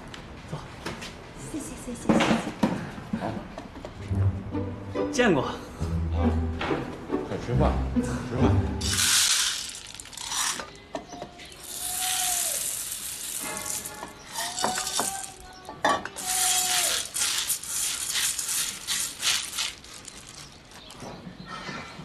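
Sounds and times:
dry beans pattering on metal: 8.8 - 10.8, 11.4 - 15.6, 16.2 - 21.0.

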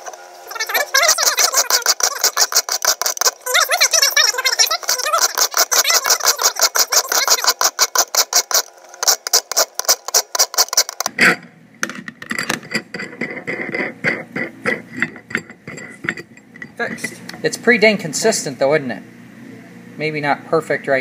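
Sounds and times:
nut spinning with metal clicks: 0.5 - 11.1, 11.8 - 17.4
file rasping on metal threads: 0.5 - 11.4, 12.4 - 17.2.

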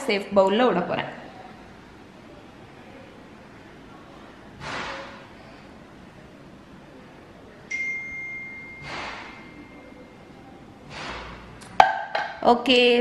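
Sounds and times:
clink on glass jug ringing: 7.7 - 9.9.

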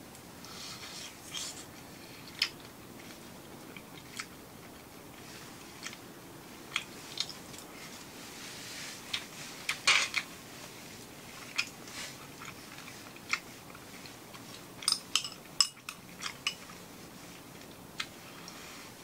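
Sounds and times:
chewing: 2.2 - 6.0, 6.7 - 7.9, 11.4 - 18.6
chopsticks clicking on bowl: 14.8 - 16.6.

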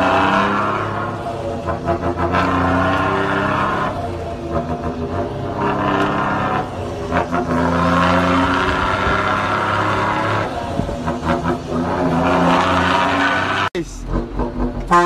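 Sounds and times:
truck engine drone: 0.0 - 15.0.

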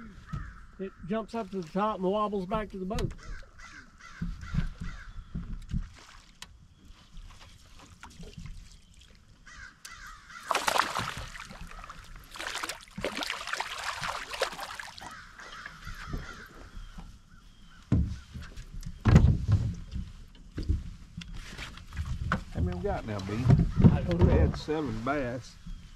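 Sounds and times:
crows cawing: 0.2 - 0.8, 3.2 - 5.2, 9.4 - 11.8, 13.8 - 17.4.

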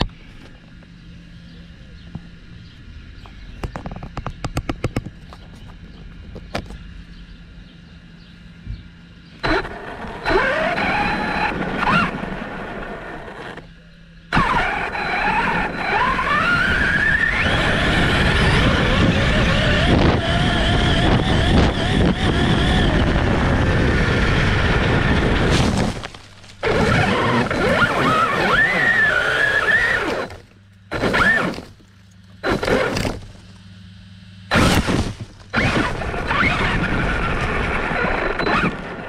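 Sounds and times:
rumbling tyres: 8.7 - 33.8, 34.5 - 39.0
electric motor whining: 9.2 - 33.6, 34.4 - 39.0
wind noise: 16.5 - 26.0.

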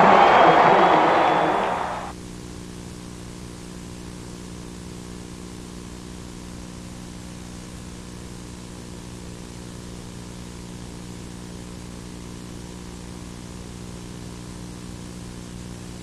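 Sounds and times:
stadium crowd cheering: 0.0 - 2.1.

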